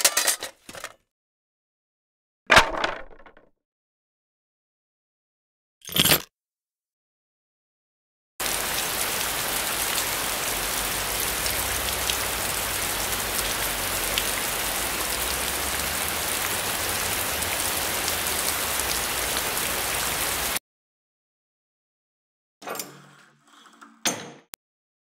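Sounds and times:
steady rain: 0:08.4 - 0:20.6.

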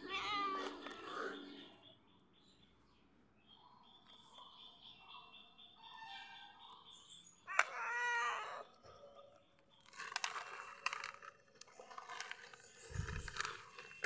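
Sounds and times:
cat meowing: 0:00.0 - 0:01.1, 0:07.5 - 0:08.7.

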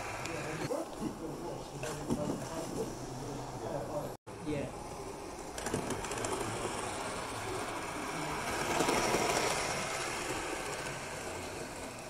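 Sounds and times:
model train motor whirr: 0:05.0 - 0:12.0
wheels rumbling on rails: 0:05.1 - 0:12.0.

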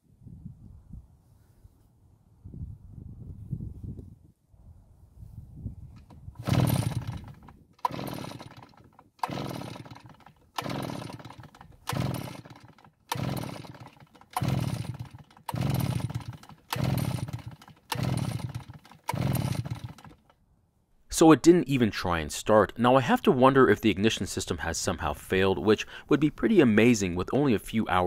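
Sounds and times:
engine pull-starter whirring: 0:06.0 - 0:20.3.

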